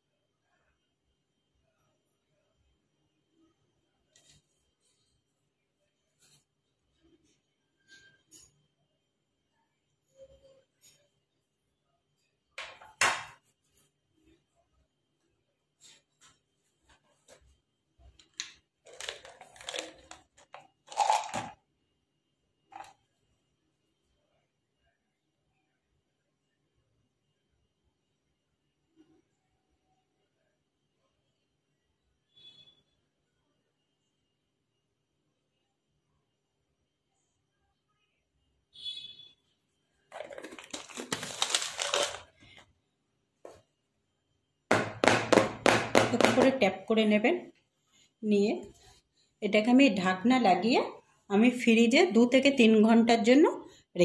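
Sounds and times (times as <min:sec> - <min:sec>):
plastic container rustling: 0:18.8 - 0:21.5, 0:40.1 - 0:42.6
crunchy rustling handling noise: 0:40.1 - 0:42.6
woman speaking: 0:46.1 - 0:47.6, 0:48.2 - 0:48.8, 0:49.4 - 0:54.0.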